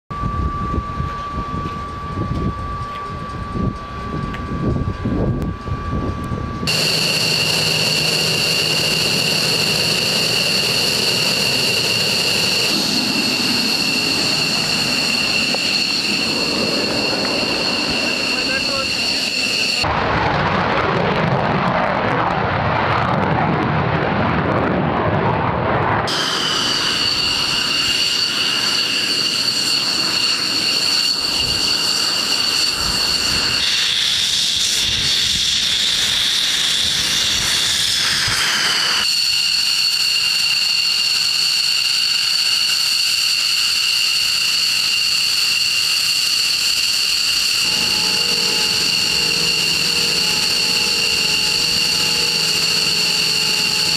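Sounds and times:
low hum: 0.1 - 24.6, 47.0 - 53.9
jet engines whining at idle: 0.1 - 53.9
jet taking off roaring: 0.1 - 53.9.

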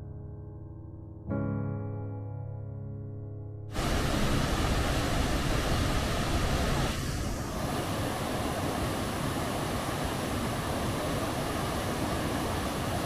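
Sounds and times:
waterfall rushing: 3.8 - 13.0.

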